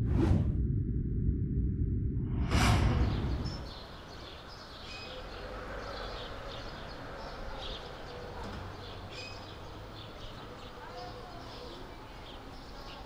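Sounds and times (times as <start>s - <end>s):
transition whoosh: 0.0s - 4.3s
small birds chirping: 3.1s - 13.0s.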